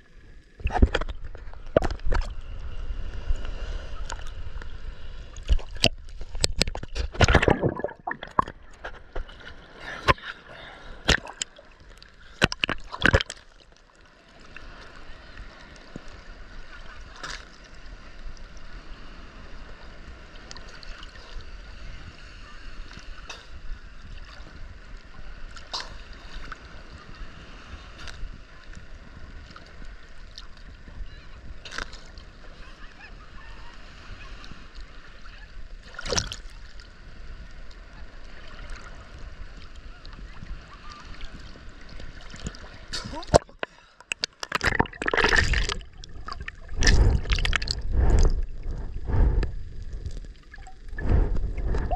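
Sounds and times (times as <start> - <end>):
low rumble of moving water: 0.0 - 51.9
short sharp splashes: 6.5 - 8.5, 42.9 - 48.3
seawater sloshing and lapping: 35.2 - 36.9, 39.7 - 51.9.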